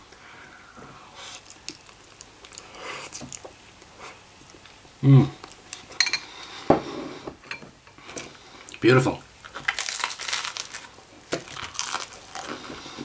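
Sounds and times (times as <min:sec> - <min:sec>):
person chewing noodles: 0:01.0 - 0:06.5, 0:09.4 - 0:13.0
person humming: 0:05.0 - 0:05.4.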